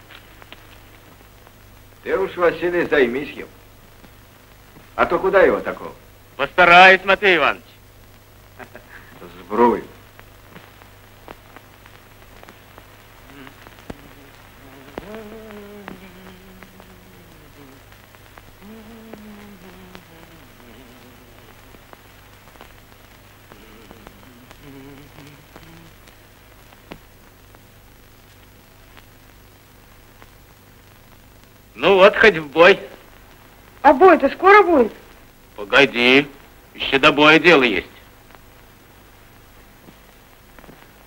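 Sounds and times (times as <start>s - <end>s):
old film soundtrack crackle: 0.0s - 41.0s
low soundtrack hum: 13.3s - 17.9s, 18.6s - 21.9s, 23.5s - 25.9s
person humming a tune: 13.3s - 17.9s, 18.6s - 21.7s, 23.5s - 26.1s.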